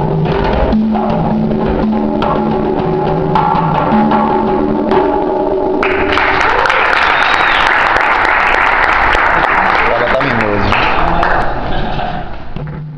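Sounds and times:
backing track of held notes: 0.0s - 6.3s
congas played by hand: 0.0s - 8.2s
applause: 5.8s - 12.0s.

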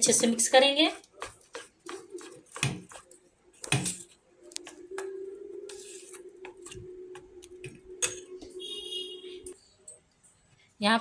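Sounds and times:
batter being beaten in steel bowl: 0.1s - 4.0s.

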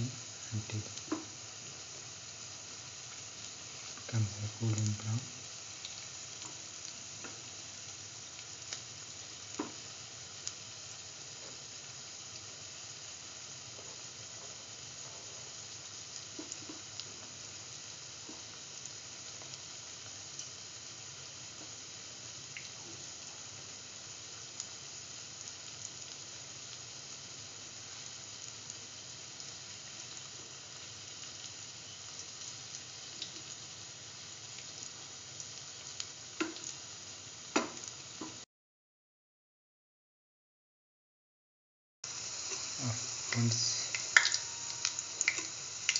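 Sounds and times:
fritters sizzling in oil: 0.0s - 38.4s, 42.0s - 45.9s.

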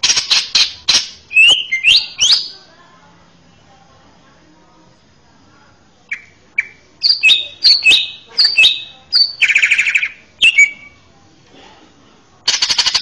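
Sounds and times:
bird rattling trill: 0.0s - 2.6s, 6.1s - 11.0s, 12.4s - 13.0s
bird singing whistled phrases: 0.5s - 2.6s, 6.1s - 11.0s.

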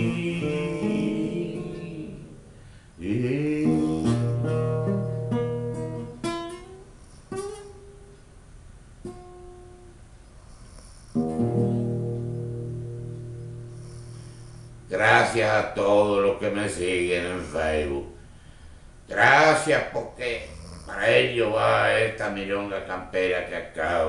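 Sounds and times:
classical guitar playing: 0.0s - 2.4s, 3.4s - 8.3s, 9.0s - 10.0s, 11.1s - 14.9s.

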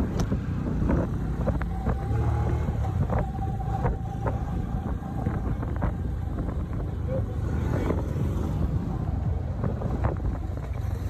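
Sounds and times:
engine rumble: 0.0s - 11.0s
wind on microphone: 0.0s - 11.0s.

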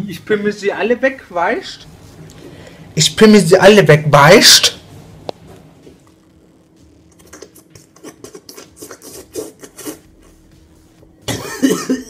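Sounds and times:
slurping through a straw: 7.1s - 10.1s.

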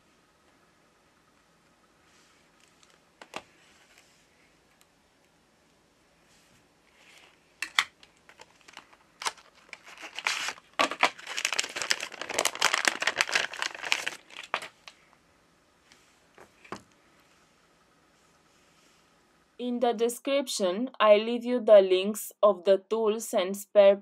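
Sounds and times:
plastic bag crinkling: 7.6s - 15.0s.

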